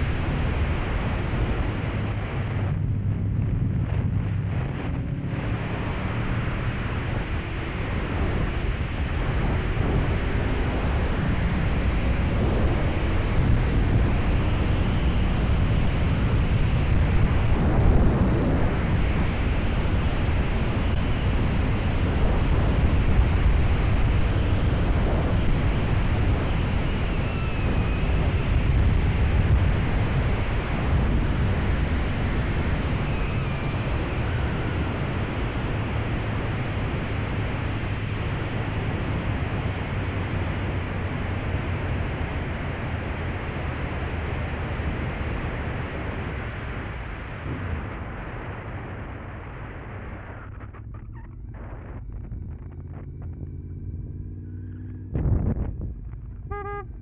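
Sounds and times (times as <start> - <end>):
wind buffeting microphone: 6.5 - 40.7, 55.0 - 57.0
motorcycle engine running: 50.3 - 57.0.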